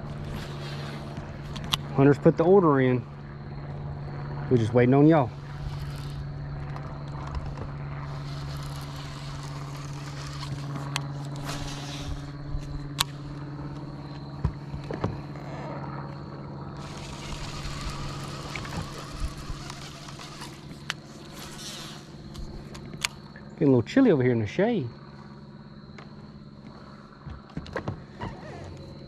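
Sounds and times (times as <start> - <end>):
trolling motor humming: 0.0 - 29.0
fishing reel clicks: 16.8 - 22.4.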